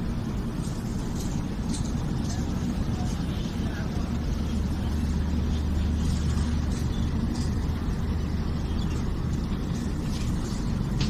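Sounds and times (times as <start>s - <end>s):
train coach low rumble: 0.0s - 11.0s.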